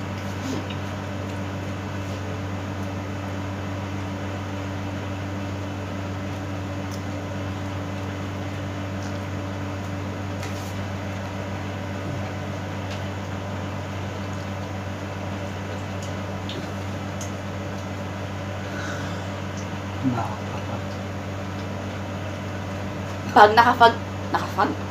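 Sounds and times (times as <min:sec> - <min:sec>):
low electrical hum of appliance: 0:00.0 - 0:24.9
faint clicks of eating: 0:00.1 - 0:01.6, 0:06.4 - 0:07.2, 0:07.9 - 0:11.2, 0:12.2 - 0:13.5, 0:14.2 - 0:18.2, 0:19.4 - 0:23.3.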